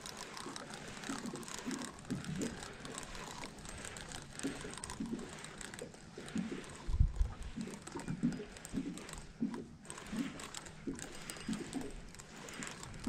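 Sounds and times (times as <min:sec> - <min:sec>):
fishing reel clicking: 0:00.0 - 0:13.0.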